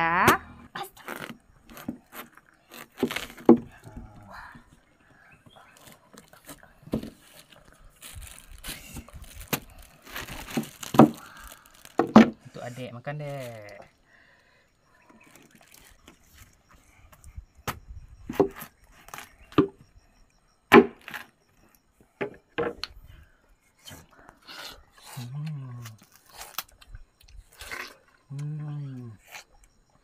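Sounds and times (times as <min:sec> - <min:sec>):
watermelon bites and chewing: 0:00.4 - 0:04.8, 0:05.6 - 0:12.2, 0:15.0 - 0:19.8, 0:23.8 - 0:29.8.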